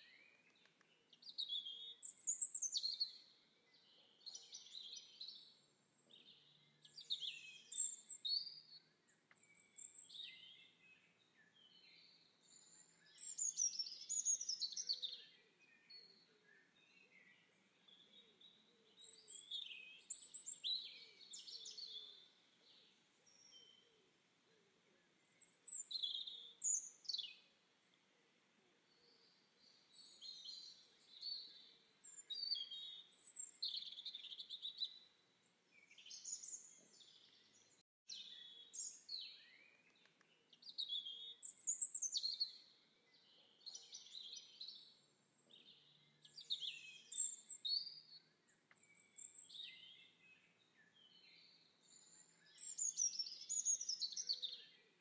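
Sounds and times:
birds chirping and singing: 0:09.4 - 0:23.8, 0:29.1 - 0:35.1, 0:48.8 - 0:54.8.

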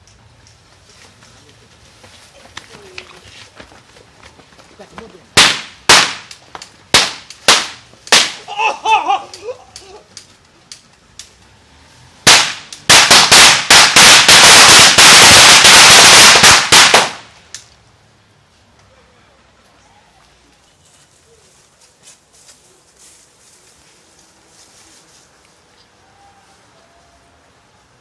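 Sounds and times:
person shouting: 0:08.4 - 0:10.0.

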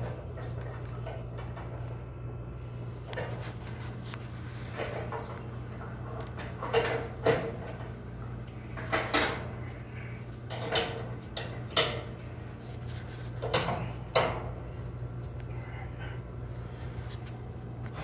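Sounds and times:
steady low hum: 0:00.0 - 0:18.0
clicks and knocks on gas valve: 0:10.5 - 0:12.2, 0:13.4 - 0:14.5.

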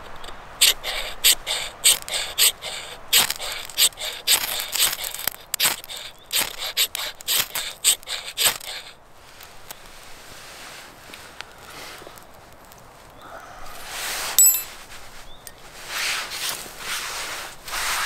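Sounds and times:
knife scraping ferrocerium rod: 0:00.6 - 0:09.0.

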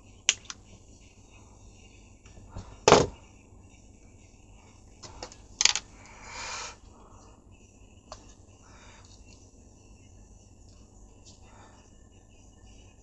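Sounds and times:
handling clicks: 0:00.3 - 0:00.6, 0:05.2 - 0:05.9.

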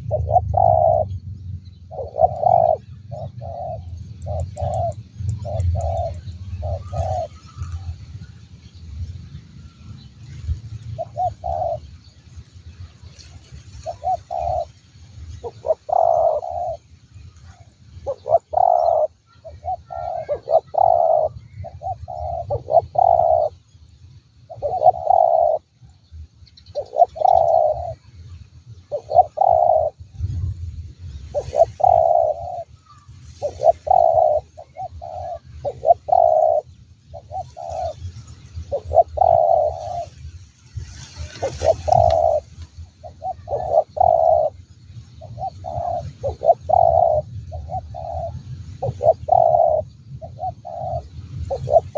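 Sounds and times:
dove cooing: 0:00.0 - 0:01.2, 0:01.9 - 0:08.0, 0:11.0 - 0:11.9, 0:13.7 - 0:14.8, 0:15.4 - 0:16.9, 0:18.0 - 0:23.6, 0:24.5 - 0:25.7, 0:26.7 - 0:28.0, 0:28.9 - 0:30.0, 0:31.3 - 0:40.2, 0:41.0 - 0:51.9.

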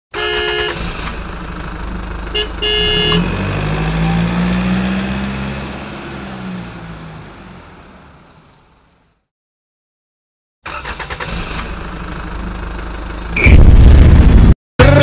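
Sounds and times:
truck horn honking: 0:00.1 - 0:00.9, 0:02.3 - 0:04.8
truck engine drone: 0:00.2 - 0:09.3, 0:10.7 - 0:15.0.

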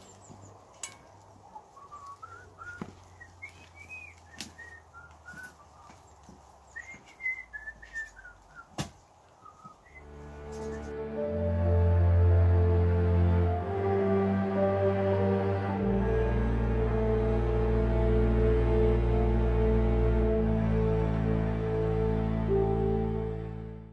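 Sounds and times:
man whistling: 0:01.8 - 0:05.7, 0:06.8 - 0:08.8, 0:09.4 - 0:10.1.

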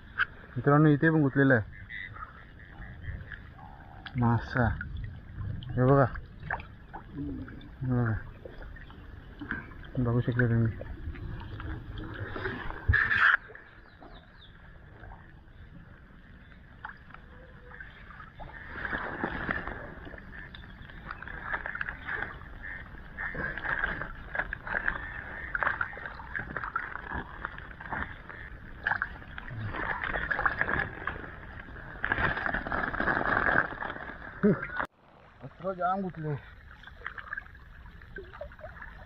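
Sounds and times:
water splashing and sloshing: 0:00.0 - 0:39.0.

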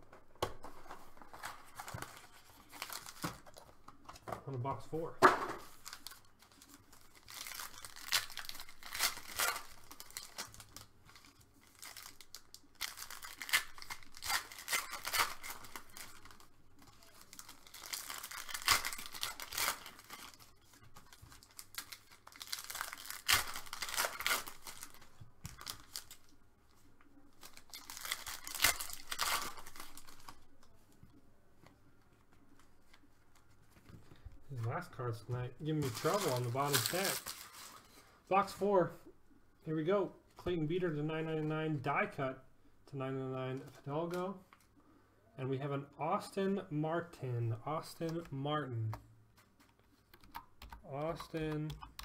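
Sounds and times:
foil wrappers tearing and crinkling: 0:00.7 - 0:03.7, 0:05.6 - 0:26.3, 0:27.3 - 0:30.5, 0:35.6 - 0:38.0.

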